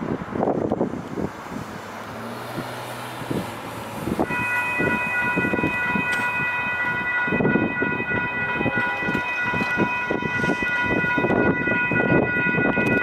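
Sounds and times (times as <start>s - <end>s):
railroad crossing bell ringing: 3.5s - 13.0s.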